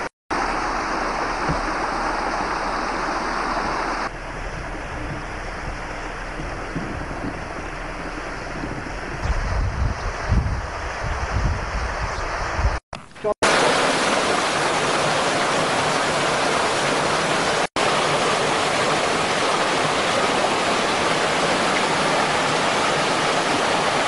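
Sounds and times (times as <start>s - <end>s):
waterfall splashing over rocks: 0.0s - 4.1s, 13.4s - 24.0s
wind buffeting microphone: 6.3s - 12.8s.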